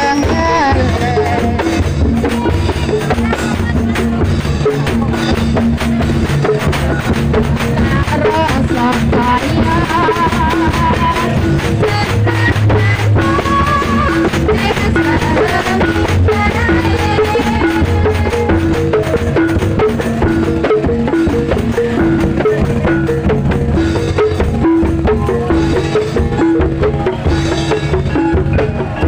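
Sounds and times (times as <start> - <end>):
handheld gongs ringing: 0.0 - 3.0
frame and bass drums: 0.0 - 29.0.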